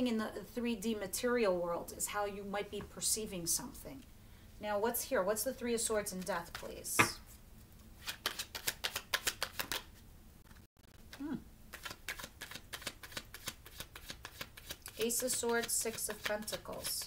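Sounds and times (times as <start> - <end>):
cards being shuffled: 8.0 - 17.0.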